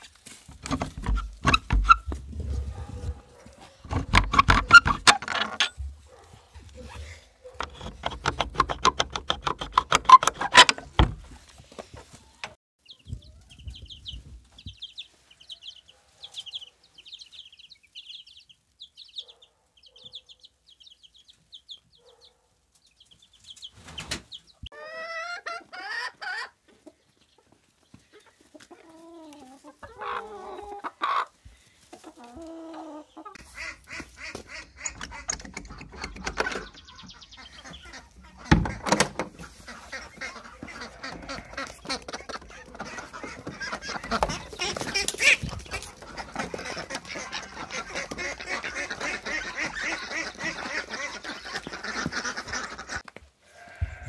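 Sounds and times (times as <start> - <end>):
chicken calls: 0.0 - 54.0
chicks peeping: 0.0 - 54.0
door bolt rattling and sliding: 3.9 - 5.7, 34.8 - 36.8.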